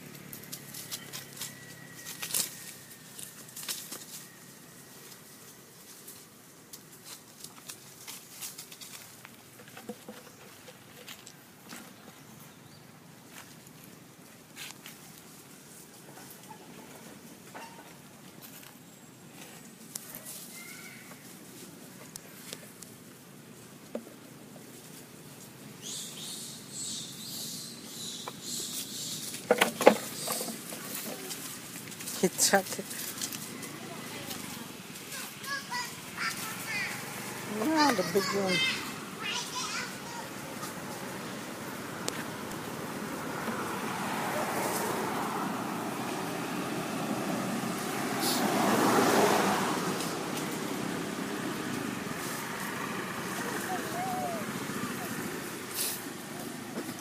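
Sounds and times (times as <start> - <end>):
vehicle passing: 0.0 - 6.6, 27.9 - 57.0
road traffic hum: 0.0 - 57.0
young monkey squealing: 53.4 - 55.2.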